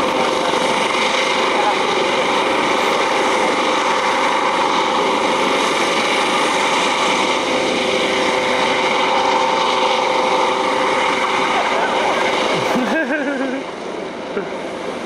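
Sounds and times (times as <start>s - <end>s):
helicopter rotor noise: 0.0s - 15.0s
helicopter turbine whine: 0.0s - 15.0s.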